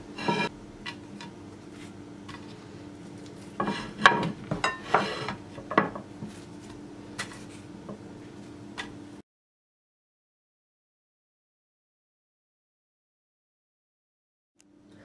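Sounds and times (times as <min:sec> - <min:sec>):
faint steady hum: 0:14.6 - 0:15.0.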